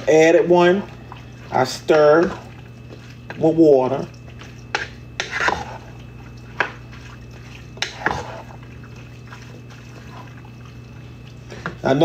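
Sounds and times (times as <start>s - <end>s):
wet sloshing: 0.0s - 12.0s
spoon scraping a pot: 4.6s - 7.0s, 7.6s - 8.8s.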